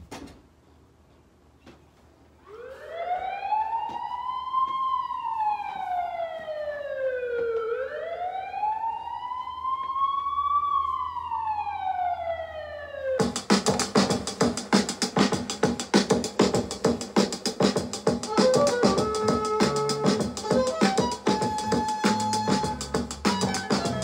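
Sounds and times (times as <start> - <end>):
wailing siren tone: 2.4 - 13.2, 18.2 - 24.0.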